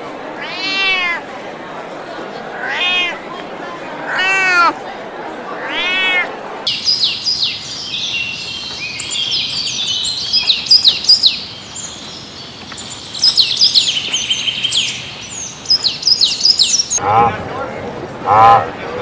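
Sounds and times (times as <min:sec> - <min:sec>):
small birds chirping: 0:06.7 - 0:17.0.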